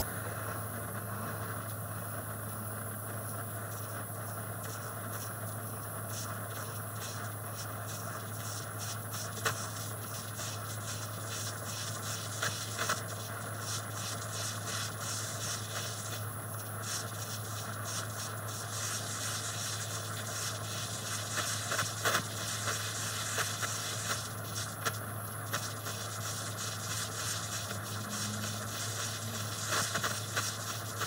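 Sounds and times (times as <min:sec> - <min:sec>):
steady low hum: 0:00.0 - 0:31.0
torch flame hissing: 0:00.0 - 0:31.0
light crackles and ticks: 0:04.6 - 0:14.3.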